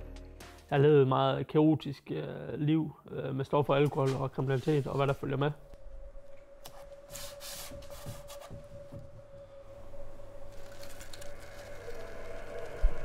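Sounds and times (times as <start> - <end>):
faint steady hum: 2.9 - 13.0.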